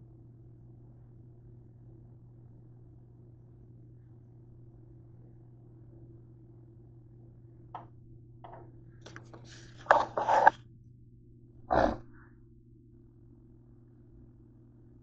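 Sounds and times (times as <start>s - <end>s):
steady low hum: 0.0s - 15.0s
fingers handling a camera: 9.2s - 10.6s.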